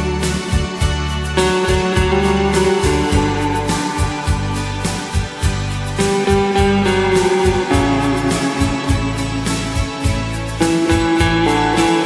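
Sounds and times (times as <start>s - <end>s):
instrumental music with beat: 0.0s - 12.0s.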